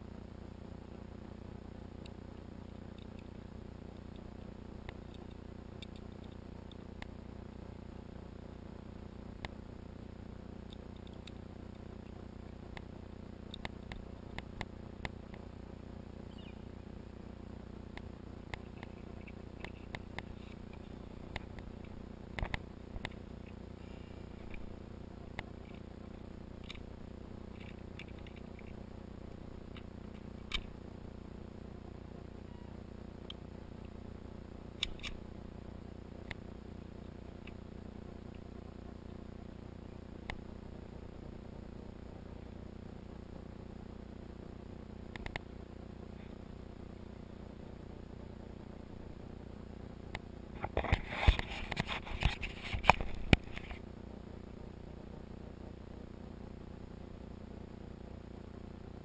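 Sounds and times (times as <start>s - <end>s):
low background hum: 0.0s - 59.0s.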